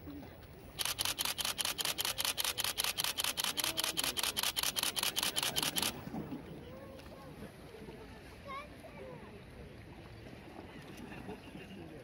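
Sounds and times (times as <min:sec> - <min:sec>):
camera shutter burst: 0:00.8 - 0:06.1.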